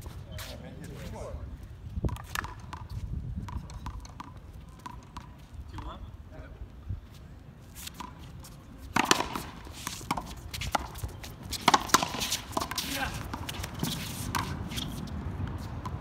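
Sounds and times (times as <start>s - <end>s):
sneakers scuffing on court: 0.0s - 1.3s, 7.1s - 16.0s
ball knocking off racquet and wall: 8.9s - 11.0s, 11.6s - 14.6s.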